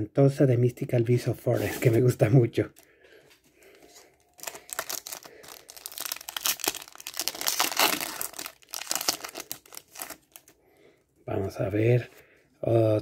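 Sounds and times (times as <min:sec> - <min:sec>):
foil wrapper crinkling and tearing: 0:04.0 - 0:10.6.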